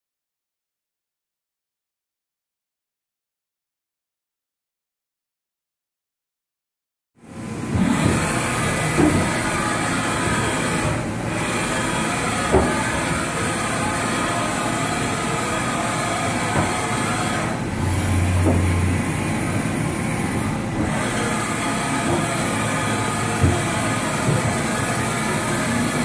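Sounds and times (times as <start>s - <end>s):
milling machine whine and hum: 7.2s - 26.0s.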